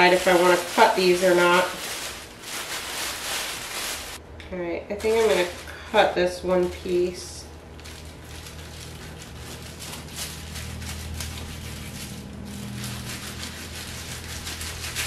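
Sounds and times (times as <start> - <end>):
plastic rustling: 0.0 - 4.2, 5.0 - 15.0
steady low hum: 0.0 - 15.0
knife slicing fish: 12.7 - 15.0.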